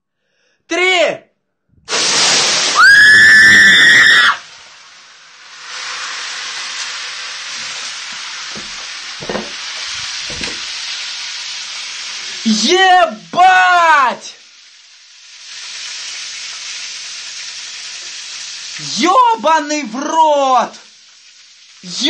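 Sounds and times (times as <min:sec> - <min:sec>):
burning oil hissing: 0:01.9 - 0:22.0
person screaming: 0:02.7 - 0:04.4
knocks: 0:08.6 - 0:09.6, 0:10.3 - 0:10.6.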